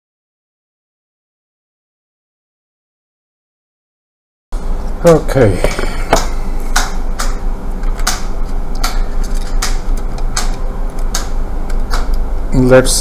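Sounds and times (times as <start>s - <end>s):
low electrical hum: 4.6s - 13.0s
sharp clicks: 6.1s - 12.2s.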